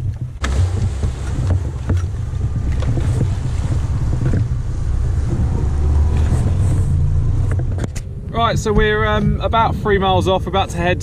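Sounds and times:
hull knocking on waves: 0.0s - 6.6s
outboard motor running: 0.0s - 8.1s
wind buffeting microphone: 0.0s - 11.0s.

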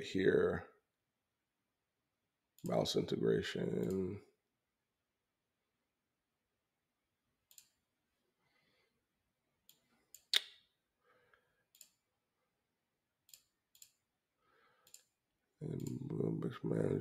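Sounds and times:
computer mouse clicks: 3.8s - 4.0s, 7.5s - 7.8s, 9.6s - 10.6s, 11.7s - 12.0s, 13.3s - 14.0s, 14.8s - 15.1s.

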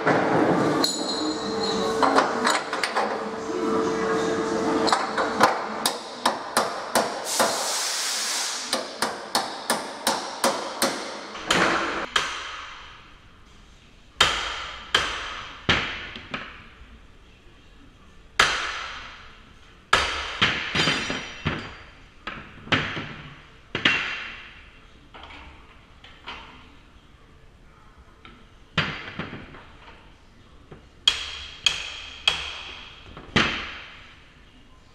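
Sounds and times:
burst of hissing noise: 7.2s - 8.8s.

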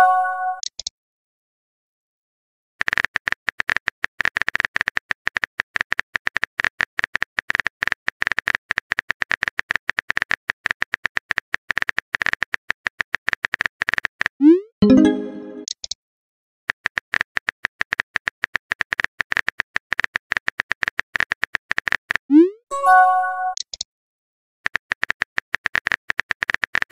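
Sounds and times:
keyboard typing clicks: 23.5s - 23.9s.

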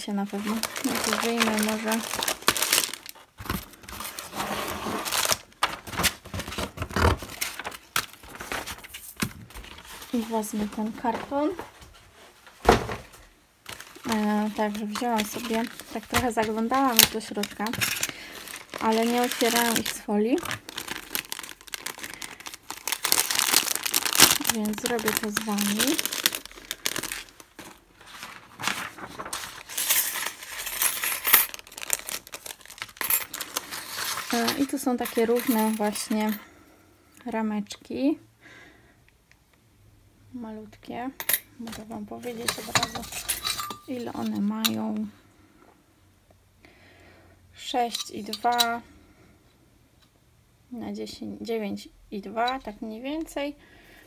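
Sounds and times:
plastic sleeve crinkling: 0.0s - 11.7s, 13.6s - 36.4s
cardboard rustling and scraping: 0.2s - 30.8s.

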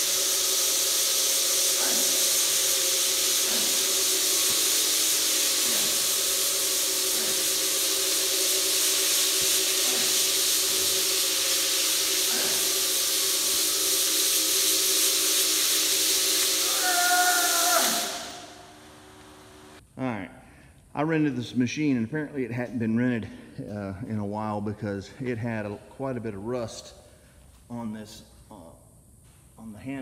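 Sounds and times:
floor buffer motor humming: 0.0s - 19.8s.

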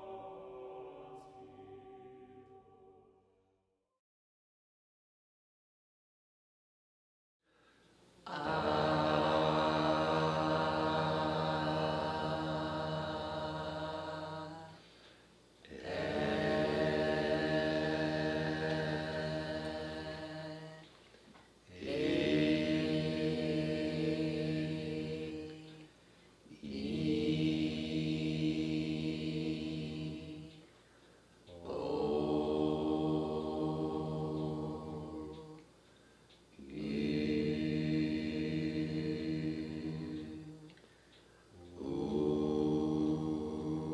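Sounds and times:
low chanted drone: 0.0s - 3.4s, 8.3s - 14.8s, 15.7s - 20.8s, 31.5s - 35.6s, 36.6s - 40.6s, 41.6s - 43.9s.

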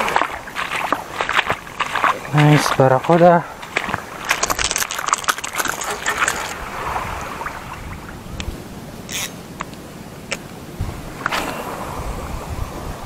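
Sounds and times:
wind on microphone: 0.0s - 13.0s
reel hiss: 9.1s - 9.4s.

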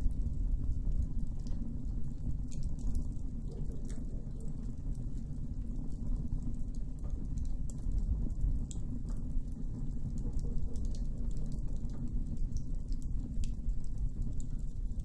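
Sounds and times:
campfire crackling and popping: 0.0s - 15.0s
low fire rumble: 0.0s - 15.0s.

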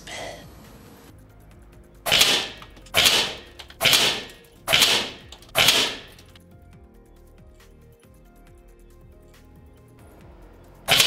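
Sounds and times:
air rifle shots: 2.1s - 6.4s.

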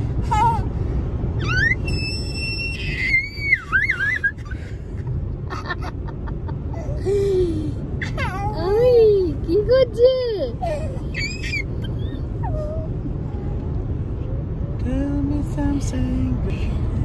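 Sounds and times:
car rumbling: 0.0s - 17.0s
toddler squealing: 1.4s - 4.4s, 10.6s - 12.9s.

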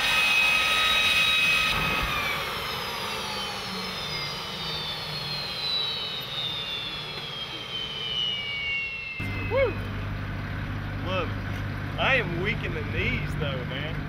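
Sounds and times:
jet engine whining: 0.0s - 14.0s.

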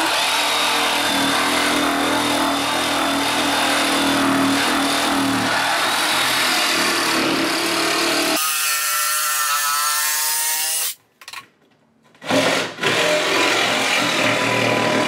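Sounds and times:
reciprocating saw cutting plywood: 0.0s - 11.0s.

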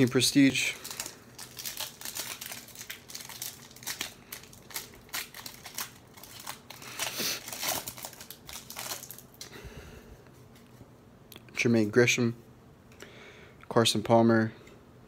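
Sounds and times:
foil wrapper crinkling: 0.0s - 9.5s
foil pack torn open: 0.8s - 9.3s.

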